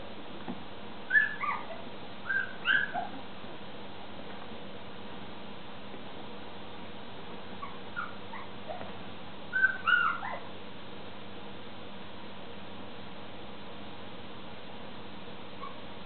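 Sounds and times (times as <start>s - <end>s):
puppies yipping and squealing: 1.1s - 3.2s, 7.6s - 10.5s, 15.6s - 15.9s.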